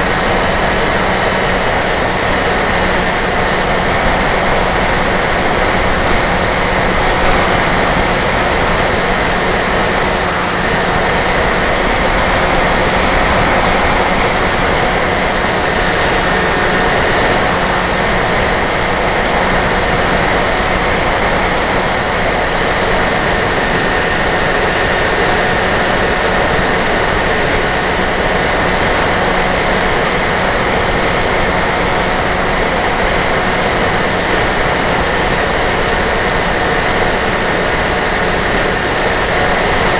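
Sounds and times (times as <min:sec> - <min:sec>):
electric motor and propeller whine: 0:00.0 - 0:39.9
wind rushing: 0:02.8 - 0:20.5.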